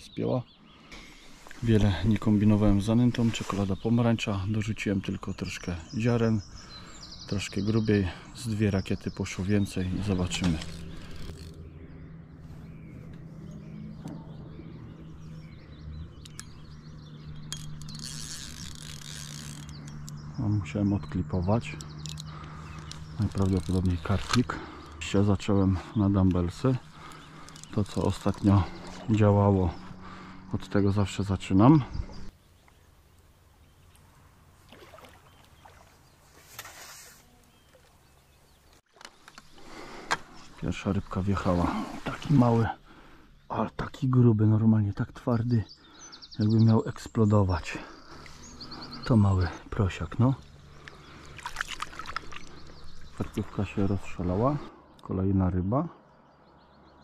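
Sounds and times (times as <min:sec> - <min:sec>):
birds singing: 0:00.0 - 0:57.0
steady low hum: 0:09.3 - 0:35.1
fish splashing in shallow water: 0:33.7 - 0:38.0, 0:50.8 - 0:53.4.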